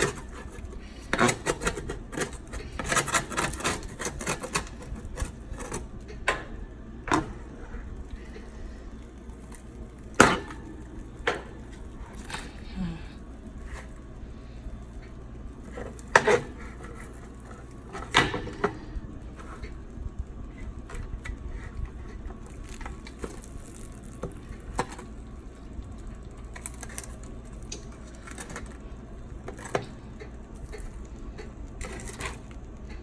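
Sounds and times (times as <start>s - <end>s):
metal spatula scraping baking tray: 0.0s - 5.8s
steady low hum: 0.0s - 33.0s.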